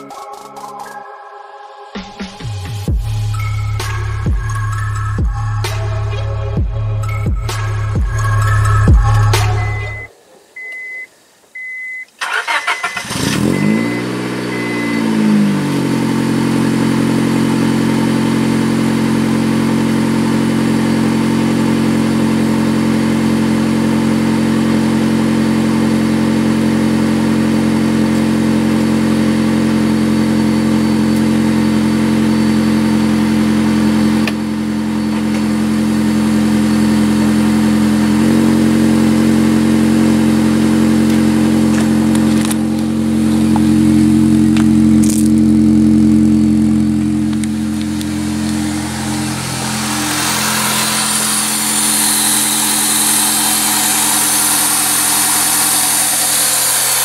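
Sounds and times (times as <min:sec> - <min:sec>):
car engine revving and idling: 0:02.3 - 0:10.1, 0:12.2 - 0:57.0
starter motor cranking: 0:12.2 - 0:13.7.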